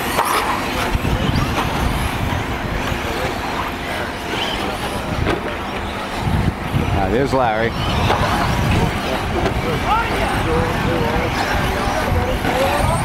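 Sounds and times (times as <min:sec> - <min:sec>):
electric rc car motors: 0:00.0 - 0:13.0
low rumbling noise: 0:00.0 - 0:13.0.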